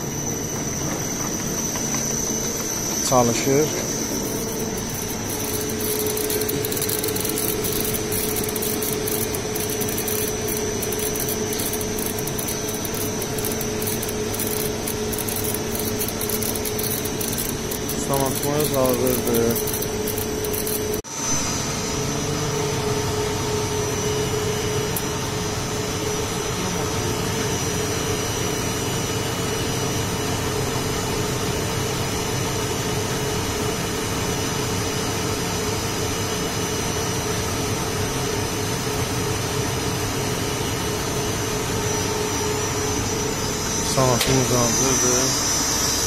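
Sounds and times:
lathe spindle motor whirring: 0:00.0 - 0:28.8, 0:39.6 - 0:46.0.

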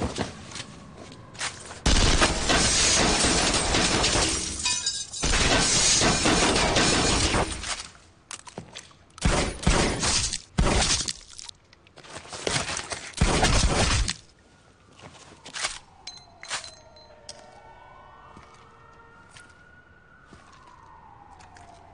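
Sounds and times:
distant siren wailing: 0:00.0 - 0:07.6, 0:14.2 - 0:21.9
glass clinks: 0:04.6 - 0:05.2.

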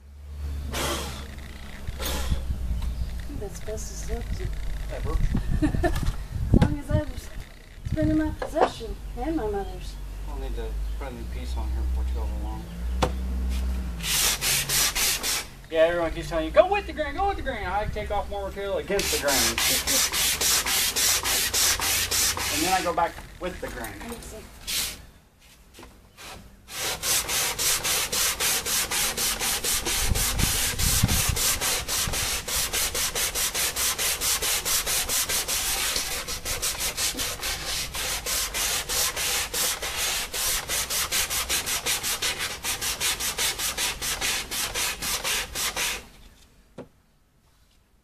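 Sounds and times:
sandpaper rubbing on wood: 0:13.5 - 0:15.5, 0:18.9 - 0:23.1, 0:24.6 - 0:25.0, 0:26.2 - 0:46.1.

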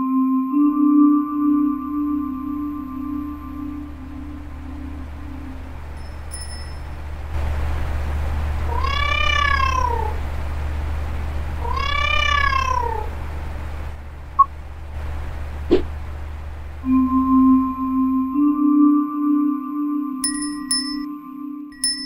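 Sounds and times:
electric fan whirring: 0:02.7 - 0:17.8
cat meowing: 0:08.7 - 0:10.2, 0:11.6 - 0:13.1.

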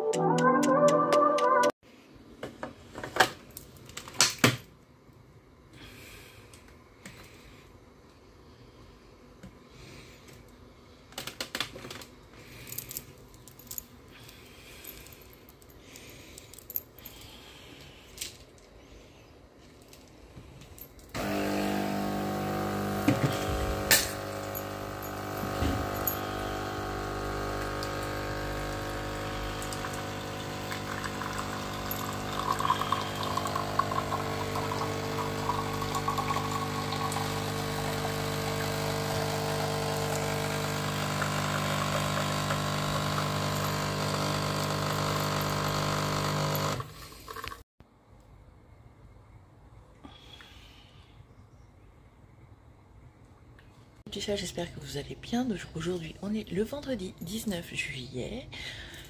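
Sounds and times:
coffee machine pump humming: 0:21.2 - 0:47.6.

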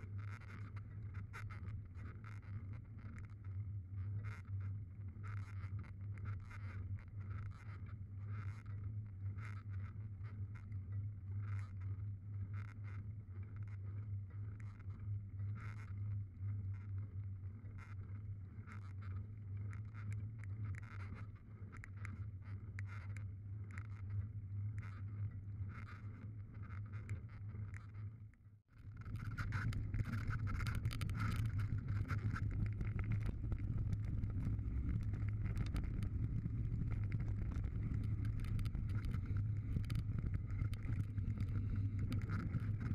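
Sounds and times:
wind rumble on microphone: 0:28.8 - 0:42.9.

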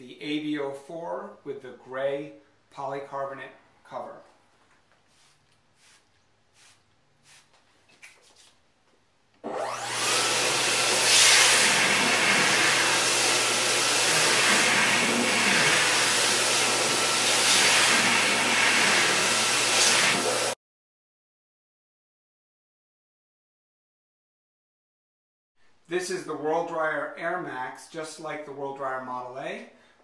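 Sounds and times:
hand dryer blowing air: 0:09.4 - 0:20.6.

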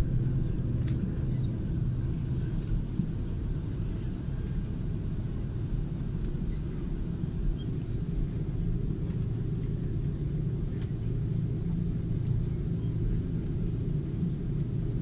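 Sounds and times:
airliner cabin rumble: 0:00.0 - 0:15.0.

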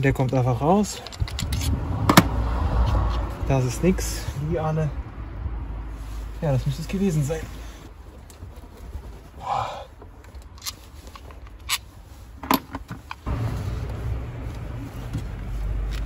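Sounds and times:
steady low rumble: 0:01.2 - 0:08.2, 0:13.2 - 0:16.0.

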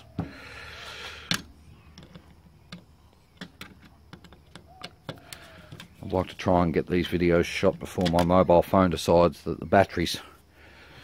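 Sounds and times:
clicks and taps on metal casing: 0:01.3 - 0:06.0.

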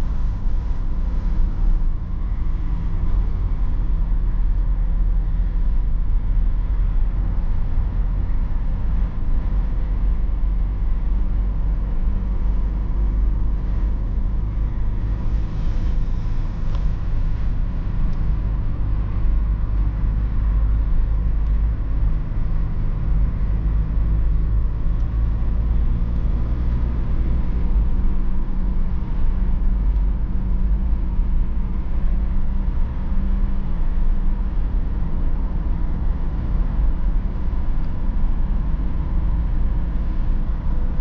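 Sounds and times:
diesel engine drone in car cabin: 0:00.0 - 0:41.0
road noise: 0:00.0 - 0:41.0.

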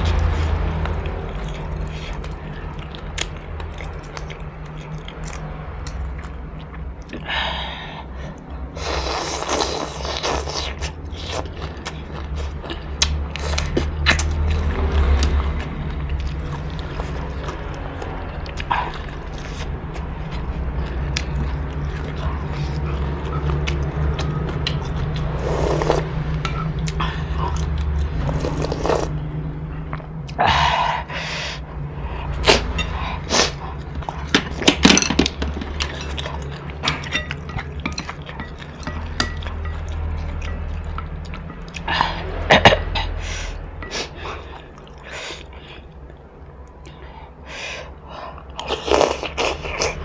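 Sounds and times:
chewing: 0:00.0 - 0:07.3, 0:08.3 - 0:30.4, 0:32.2 - 0:43.2, 0:43.8 - 0:47.1
slurping noodles and broth: 0:08.8 - 0:11.5, 0:25.4 - 0:26.1, 0:28.2 - 0:29.2.

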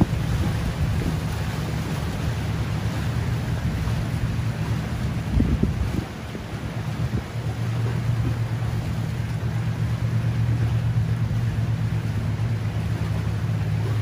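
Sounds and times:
boat engines droning: 0:00.0 - 0:14.0
water noise: 0:00.0 - 0:14.0
wind: 0:00.0 - 0:14.0.

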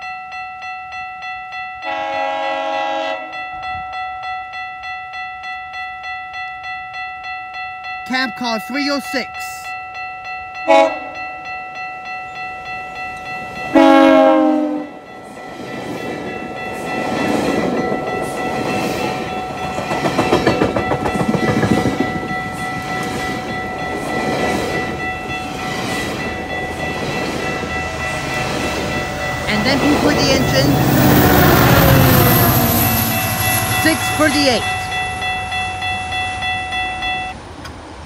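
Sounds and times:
crossing warning bell ringing: 0:00.0 - 0:37.6
train horn blasts: 0:01.8 - 0:03.4, 0:10.6 - 0:11.2, 0:13.7 - 0:15.0
train wheels clickety-clack: 0:15.6 - 0:29.0.

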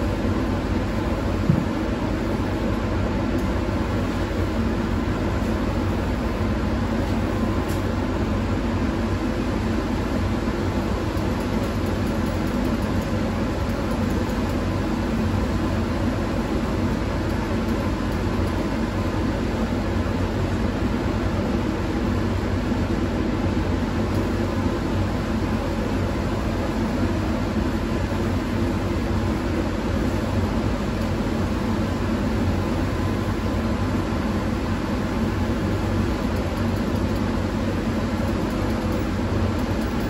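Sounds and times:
exhaust fan: 0:00.0 - 0:40.0
short knock: 0:01.5 - 0:01.8.

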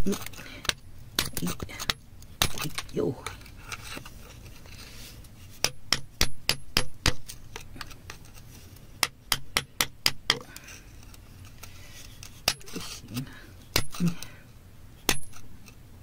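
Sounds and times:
metal tool tapping on rock: 0:05.6 - 0:07.2, 0:13.7 - 0:14.3, 0:15.1 - 0:15.4.

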